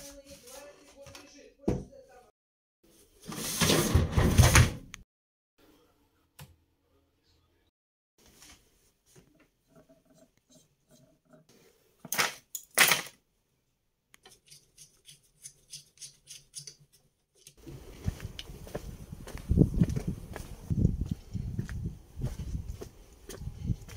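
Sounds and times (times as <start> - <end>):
footsteps outdoors: 17.6 - 23.9
wind noise on microphone: 17.6 - 23.9.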